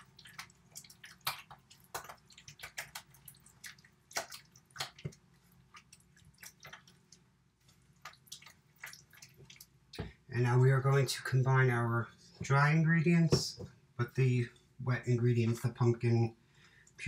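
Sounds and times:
spatula stirring wet batter: 0.0 - 10.2.

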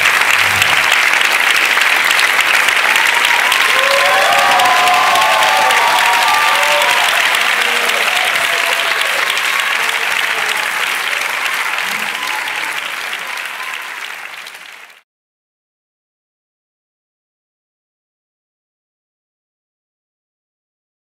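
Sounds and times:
audience applauding: 0.0 - 15.0
voices over clapping: 0.0 - 15.0.

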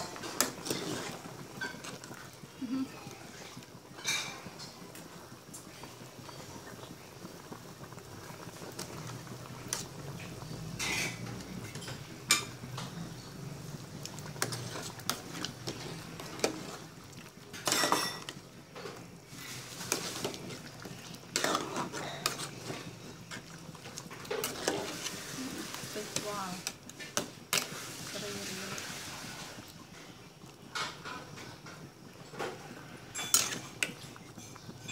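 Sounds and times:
soup boiling: 0.0 - 34.9
metal utensil clinking on pot: 17.6 - 18.4, 21.3 - 22.5, 33.1 - 34.9.

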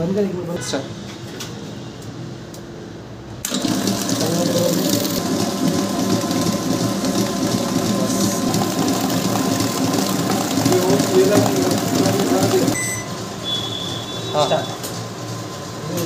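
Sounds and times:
food mixer running: 3.4 - 16.0
whisk beating batter: 3.5 - 12.8.

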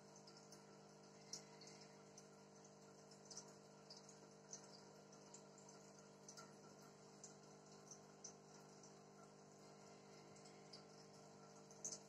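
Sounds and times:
steady hum: 9.3 - 11.8.

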